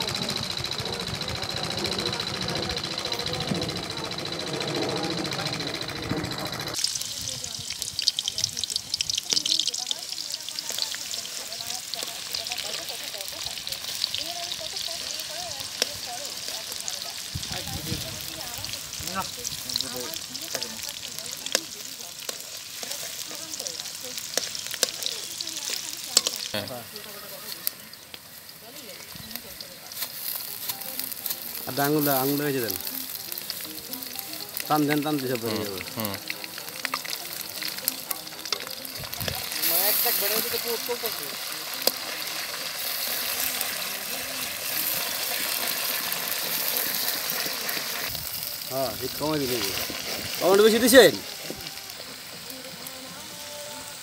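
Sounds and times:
onions sizzling in hot oil: 6.5 - 54.0.

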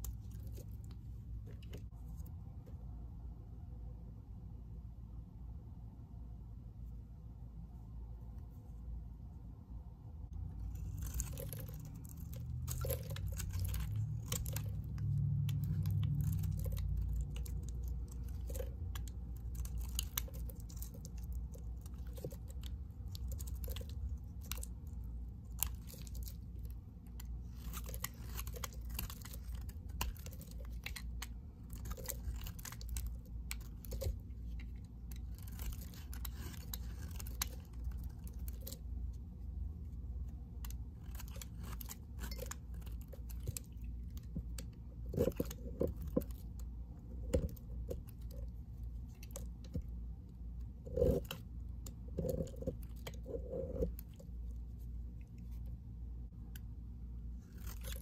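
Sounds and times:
knife cutting soap: 10.4 - 39.3, 39.9 - 54.7, 57.3 - 58.0
soap crackling: 10.6 - 39.0.

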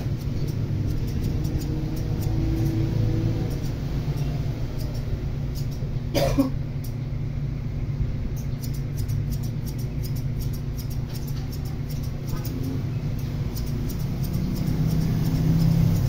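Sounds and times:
light high ticks: 0.0 - 5.9, 8.3 - 16.0
person coughing: 6.1 - 6.6.

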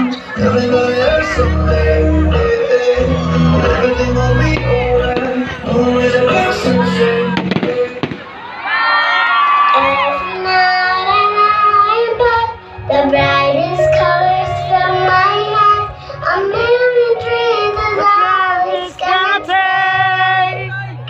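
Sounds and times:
sustained bass notes: 0.0 - 7.9
song with high singing voice: 0.0 - 8.3, 9.6 - 20.7.

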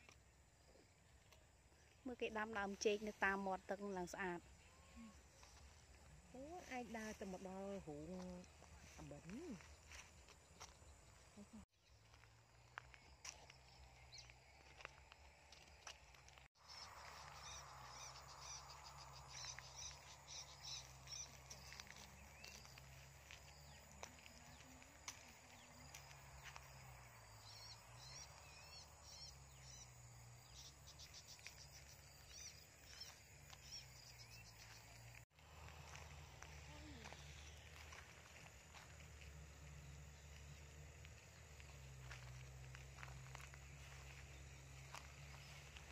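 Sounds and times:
small birds chirping: 0.0 - 45.9
insect drone: 16.6 - 45.9.

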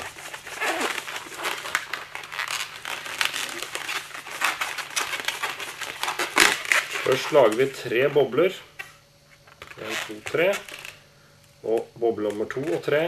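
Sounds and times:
balloon squeaking and crackling: 0.0 - 8.3, 9.5 - 11.0.

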